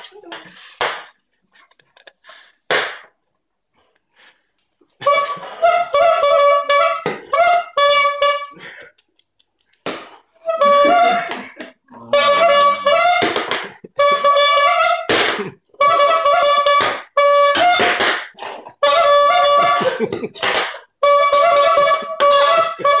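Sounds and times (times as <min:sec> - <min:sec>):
squeeze bulb horn honking: 0:05.0 - 0:08.6, 0:10.4 - 0:11.4, 0:12.1 - 0:13.4, 0:14.0 - 0:15.1, 0:15.8 - 0:18.0, 0:18.8 - 0:20.0, 0:21.0 - 0:23.0.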